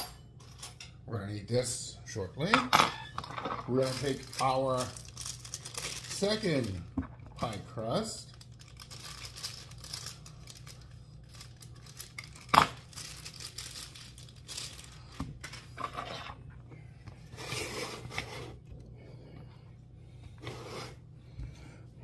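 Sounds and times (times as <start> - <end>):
packaging rustling and crinkling: 3.7 - 15.8.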